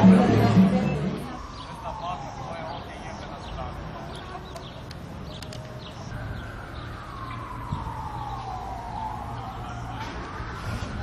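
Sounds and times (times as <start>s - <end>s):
siren wailing: 0.0s - 3.8s, 6.1s - 11.0s.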